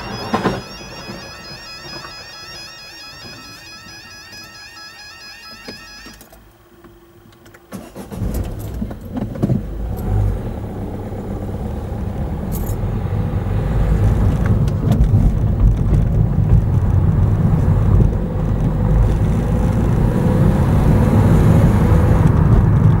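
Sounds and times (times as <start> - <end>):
car pulling away from inside: 0.0 - 4.0, 7.8 - 23.0
level crossing warbling alarm: 0.0 - 6.3.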